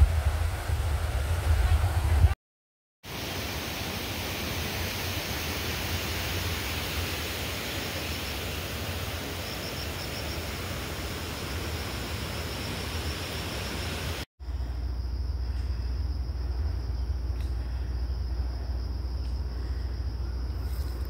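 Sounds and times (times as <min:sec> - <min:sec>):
rushing noise with low rumble: 0:00.0 - 0:02.4.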